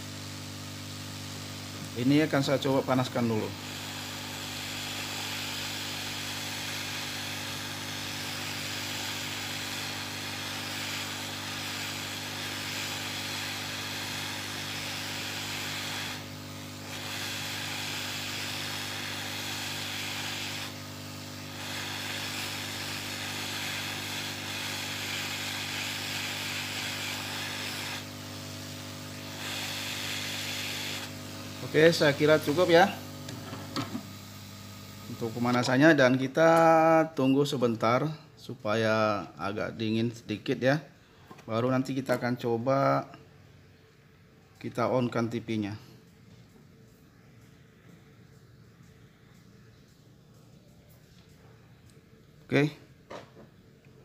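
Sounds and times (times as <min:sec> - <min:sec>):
hot air blower hissing: 0:00.0 - 0:36.9.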